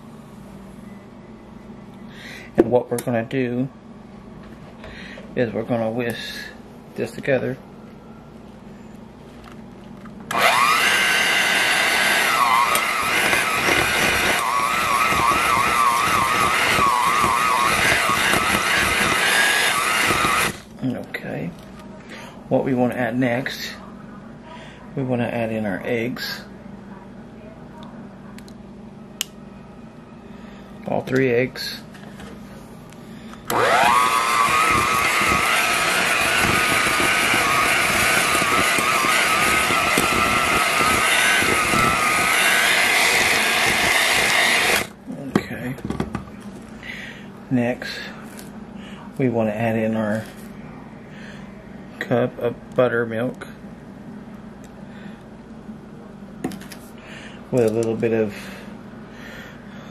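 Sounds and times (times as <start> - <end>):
electric hand mixer whine: 10.3 - 20.6, 33.5 - 45.0.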